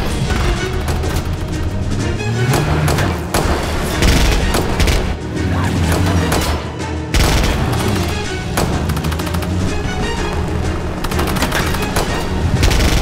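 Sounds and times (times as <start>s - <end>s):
dramatic score music: 0.0s - 13.0s
gunfire: 0.0s - 13.0s
loud booming hits: 5.9s - 9.0s.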